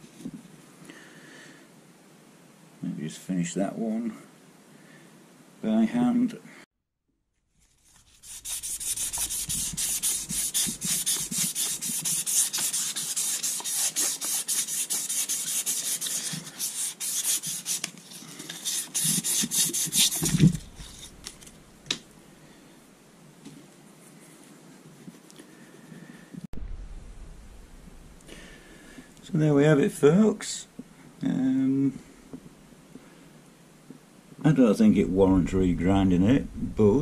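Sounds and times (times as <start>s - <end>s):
abrasive strip rasping on metal: 7.7s - 17.9s, 18.5s - 21.6s.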